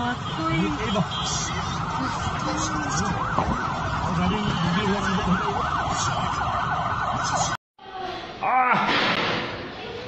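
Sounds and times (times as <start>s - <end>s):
street noise: 0.0s - 10.0s
siren yelping: 0.6s - 7.6s.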